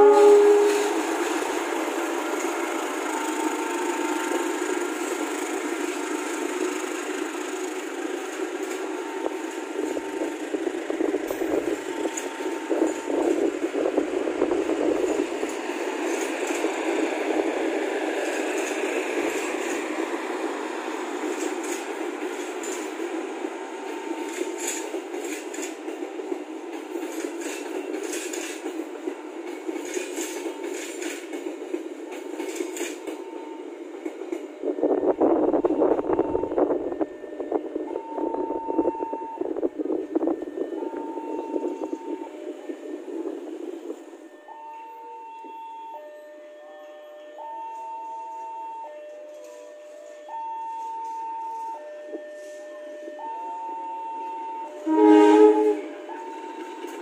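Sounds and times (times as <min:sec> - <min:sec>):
rumble of train wheels on rails: 0:00.0 - 0:46.3, 0:47.0 - 0:57.0
wheels clicking over rail joints: 0:21.1 - 0:34.5.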